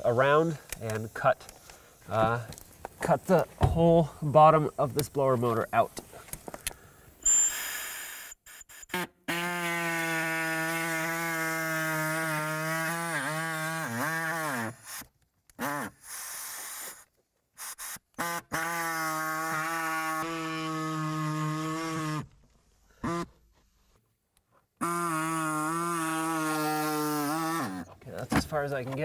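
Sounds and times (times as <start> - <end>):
reciprocating saw cutting plastic: 7.4 - 22.4, 24.8 - 27.9.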